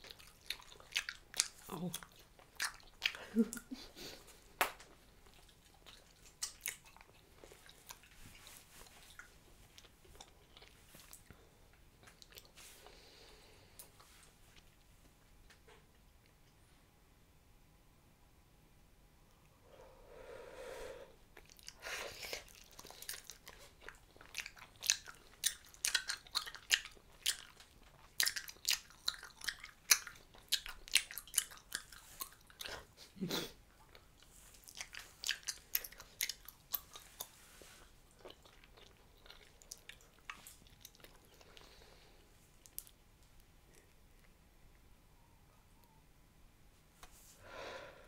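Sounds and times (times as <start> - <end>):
mouth chewing gum: 0.0 - 14.7, 21.3 - 42.0.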